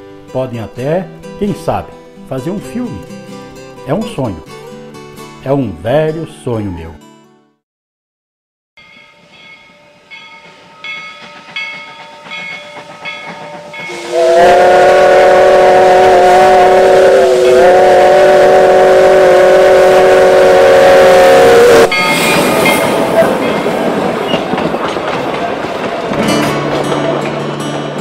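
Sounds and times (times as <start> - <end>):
steam locomotive chime whistle: 8.8 - 24.5
locomotive exhaust chuffs: 10.2 - 28.0.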